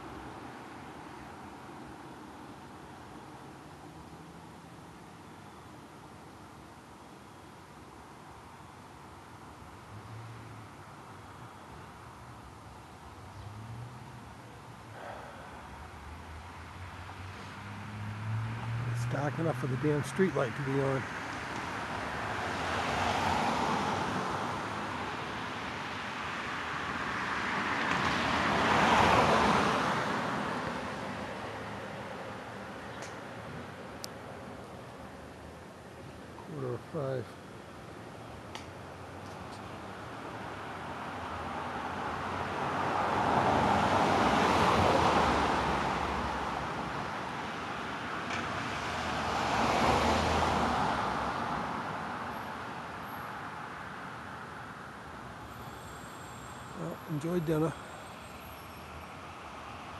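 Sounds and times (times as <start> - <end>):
cars passing: 0.0 - 6.5, 8.8 - 59.9
vehicle approaching: 15.0 - 25.8.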